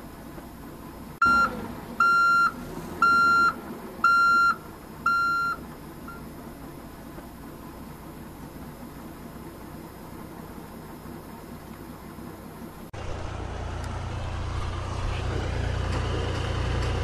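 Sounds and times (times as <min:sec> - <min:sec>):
reversing beeper: 0:01.2 - 0:06.2.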